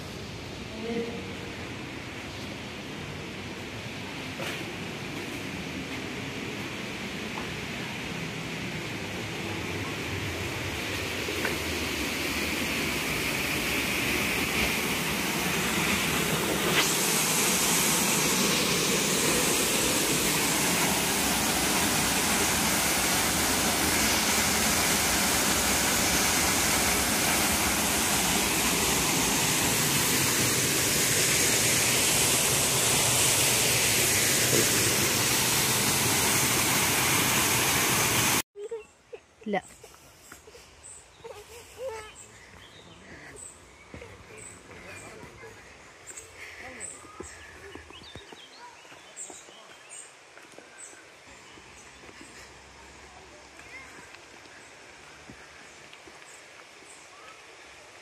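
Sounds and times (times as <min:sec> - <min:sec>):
waterfall rushing: 0:06.9 - 0:38.4.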